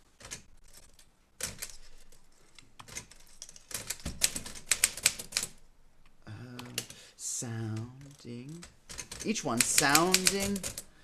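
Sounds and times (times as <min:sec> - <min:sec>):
manual typewriter key strikes: 0:08.9 - 0:10.8.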